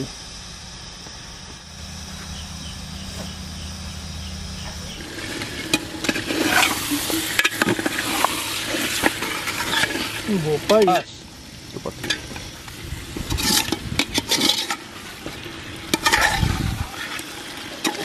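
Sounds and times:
steady low hum: 0.0 - 17.7
curry sizzling in a pot: 2.3 - 18.0
ladle scraping a metal pot: 13.3 - 14.8.

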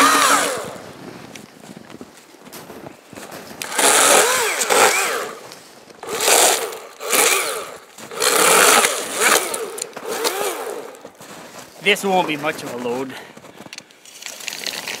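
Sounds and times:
chainsaw revving: 0.0 - 0.9, 3.6 - 11.1.

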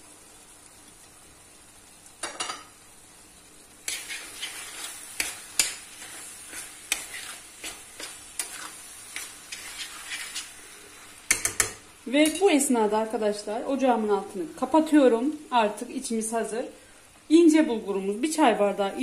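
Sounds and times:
faint sizzle: 0.0 - 19.0
spoon stirring and knocking pot: 3.9 - 10.5, 11.3 - 12.4.

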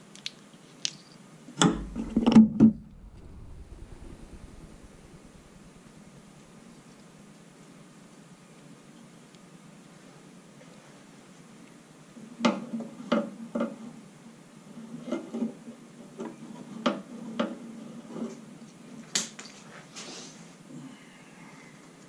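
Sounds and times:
clicks and knocks of small parts: 0.0 - 1.2.

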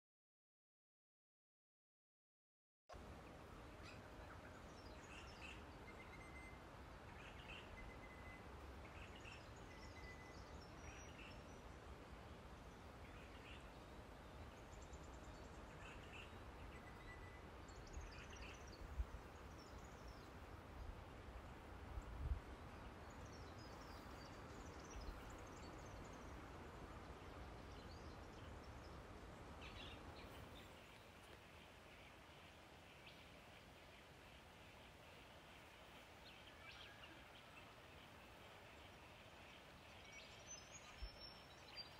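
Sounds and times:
wild birds chirping and whistling: 3.8 - 11.9, 12.6 - 20.5, 22.6 - 41.9
steady hiss: 17.4 - 41.9.

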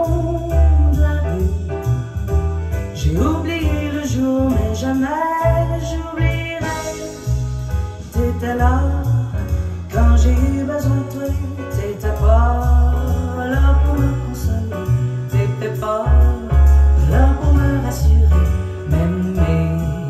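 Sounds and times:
heavy bass line: 0.0 - 20.0
pop music over loudspeakers: 8.0 - 20.0.

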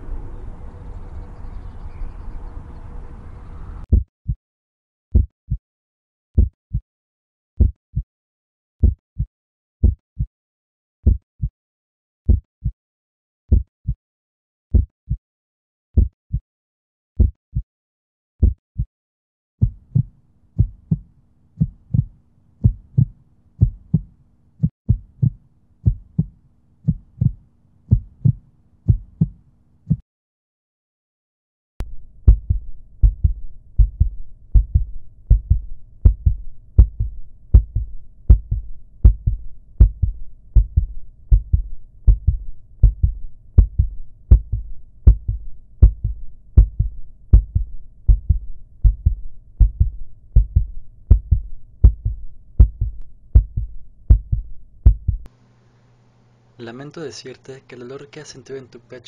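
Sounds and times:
low hum: 0.0 - 3.9, 31.8 - 56.6
heartbeat thumps: 3.9 - 4.4, 5.1 - 5.6, 6.4 - 6.8, 7.6 - 8.1, 8.8 - 10.3, 11.0 - 11.5, 12.3 - 12.8, 13.5 - 14.0, 14.7 - 15.2, 16.0 - 16.4, 17.2 - 17.7, 18.4 - 18.9, 19.6 - 30.0, 32.2 - 55.3.

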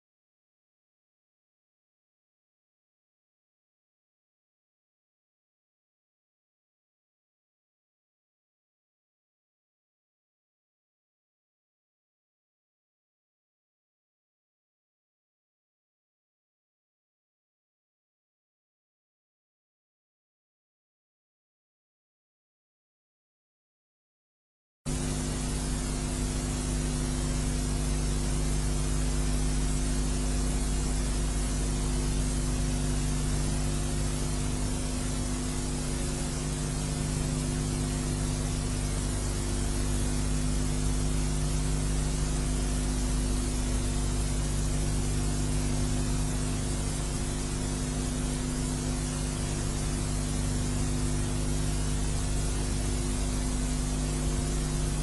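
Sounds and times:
low even hum: 24.9 - 55.0
steady hiss: 24.9 - 55.0.

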